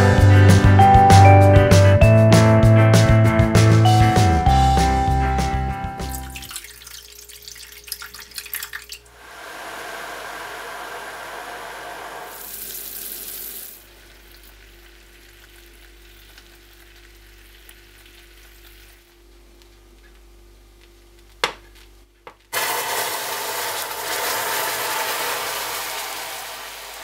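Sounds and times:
hot water pouring: 6.1 - 16.8, 22.5 - 27.0
sugar syrup boiling and bubbling: 6.2 - 21.5, 22.4 - 27.0.

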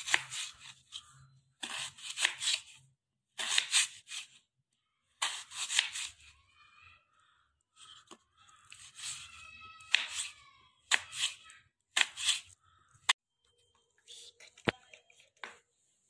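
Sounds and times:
knife slicing raw potato: 0.0 - 4.4, 5.2 - 6.3, 8.0 - 13.2.

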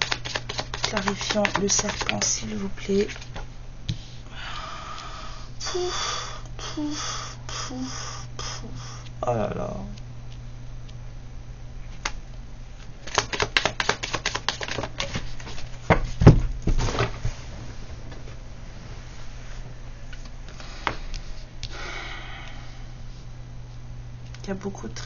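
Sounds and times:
cards shuffling clicks: 0.0 - 3.5, 13.0 - 15.6.

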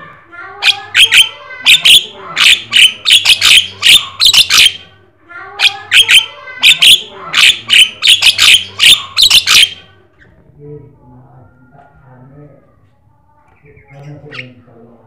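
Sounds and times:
myna bird singing: 0.6 - 5.0, 5.6 - 10.4, 13.4 - 15.0.

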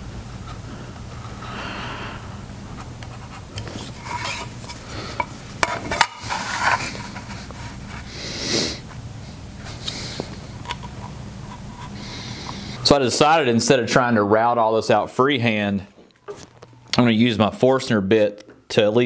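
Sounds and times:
knife scratching wood: 3.0 - 8.1
hissing scrape: 3.2 - 8.8.

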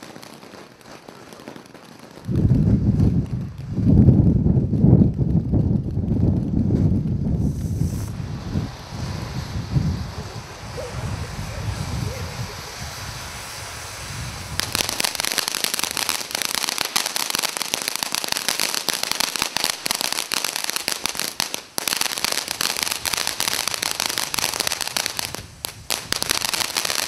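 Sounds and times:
firework fountain hissing and crackling: 0.0 - 27.0.

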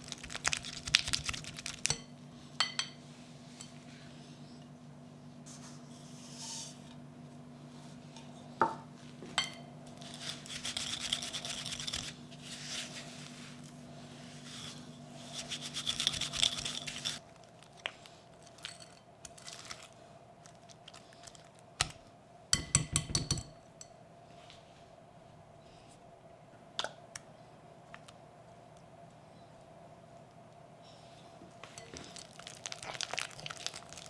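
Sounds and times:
whisk scraping in glass bowl: 10.0 - 12.2, 14.6 - 17.2.

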